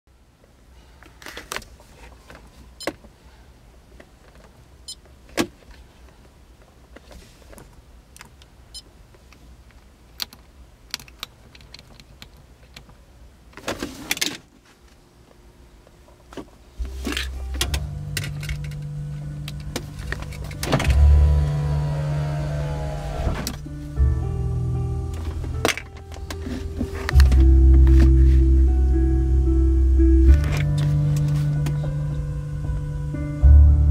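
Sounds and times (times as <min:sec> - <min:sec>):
heavy bass through subwoofer: 0:16.8 - 0:33.9.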